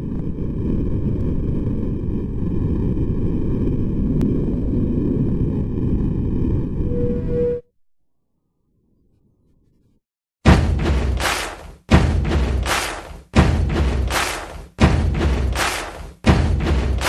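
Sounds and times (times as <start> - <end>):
low rumbling noise: 0.0 - 7.6, 11.9 - 17.0
brief tone: 6.7 - 8.0.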